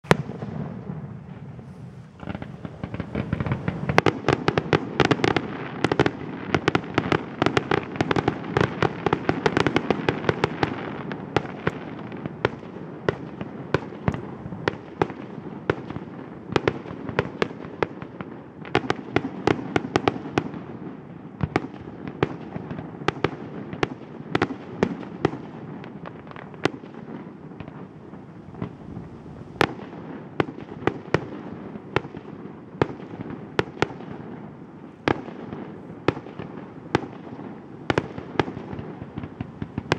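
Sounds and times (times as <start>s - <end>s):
firework shells bursting: 0.0s - 6.2s
continuous haze of noise: 0.0s - 39.9s.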